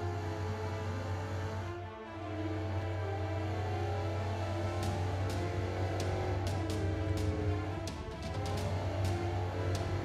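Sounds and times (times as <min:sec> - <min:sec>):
soundtrack music with deep bass: 0:00.0 - 0:10.0.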